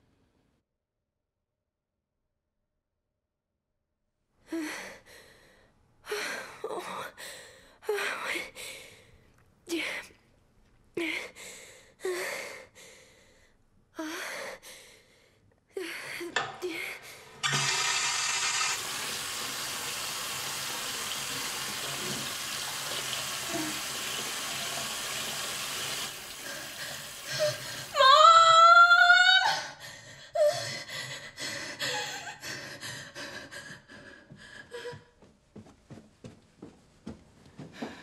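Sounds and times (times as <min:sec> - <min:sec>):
woman screaming: 0:27.9 - 0:29.6.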